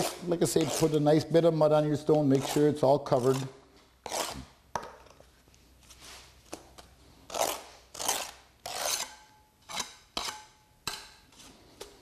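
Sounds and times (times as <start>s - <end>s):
trowel scraping mortar: 0.0s - 1.0s, 2.0s - 4.6s, 7.3s - 11.5s.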